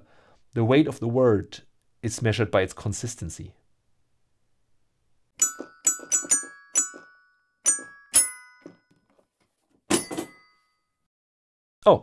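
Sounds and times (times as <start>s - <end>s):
glockenspiel-like jingle: 5.4s - 8.9s, 9.9s - 11.0s.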